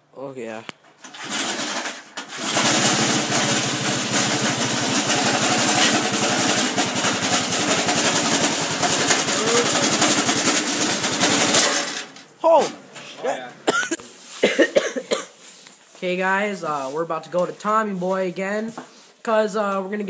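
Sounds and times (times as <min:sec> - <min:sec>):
engine cranking on starter: 0:01.0 - 0:12.3.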